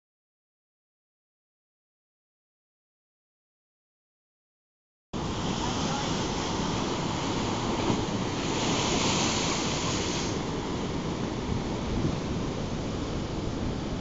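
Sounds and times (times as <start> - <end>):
surf breaking against rocks: 5.2 - 12.8
hiss of washing foam: 8.4 - 10.4.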